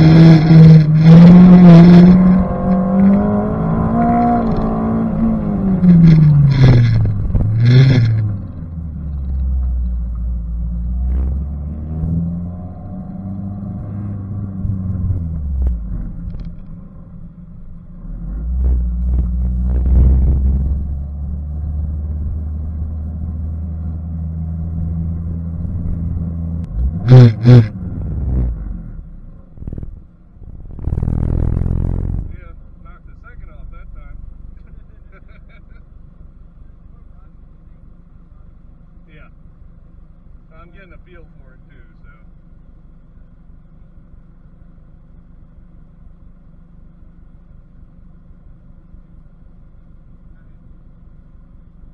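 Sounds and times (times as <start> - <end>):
car engine revving and idling: 0.0 - 51.9
loud horn blasts: 27.0 - 27.7.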